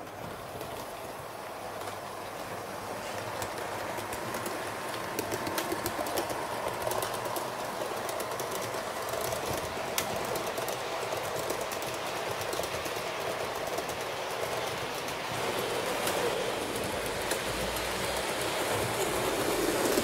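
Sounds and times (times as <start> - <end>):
model train whirring: 0.0 - 20.0
wheels clicking over rail joints: 0.0 - 20.0.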